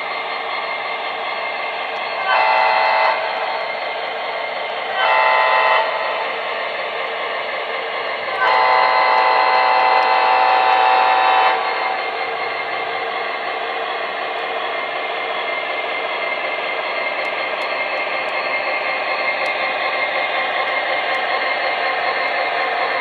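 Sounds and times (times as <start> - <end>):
train horn blasts: 2.3 - 3.2, 5.0 - 6.1, 8.4 - 11.7.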